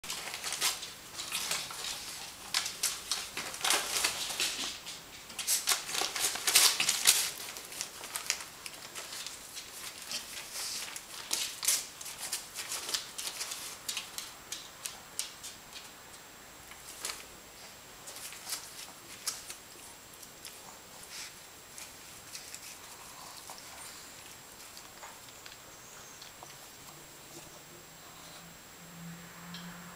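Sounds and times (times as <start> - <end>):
dog tearing paper: 0.0 - 14.6.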